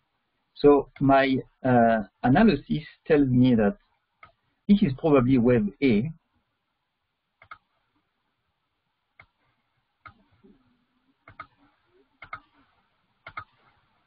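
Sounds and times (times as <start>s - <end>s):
computer mouse clicking: 7.4s - 7.8s, 9.2s - 10.4s, 11.2s - 13.9s.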